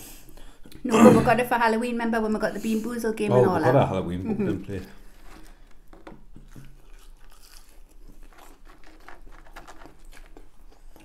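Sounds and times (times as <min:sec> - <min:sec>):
chewing with crunches: 0:04.8 - 0:11.0.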